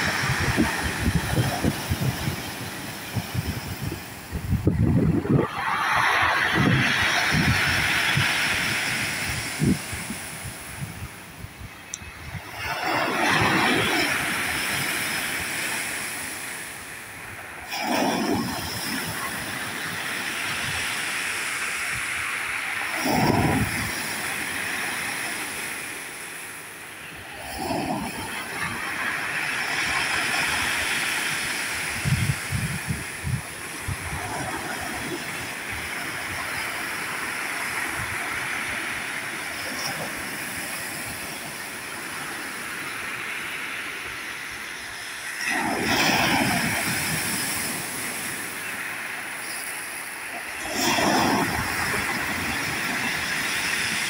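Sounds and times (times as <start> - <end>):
surf washing over pebbles: 0.0 - 11.5, 12.2 - 54.0
waves crashing: 0.0 - 54.0.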